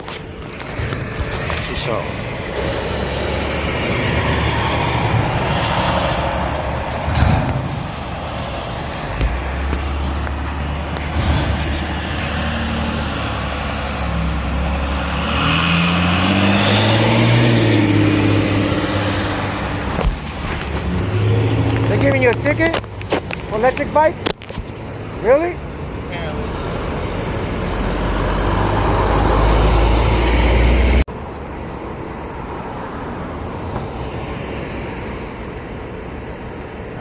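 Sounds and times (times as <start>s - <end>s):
street traffic rumble: 0.0s - 37.0s
large vehicle engine passing: 0.7s - 22.7s, 26.4s - 31.0s.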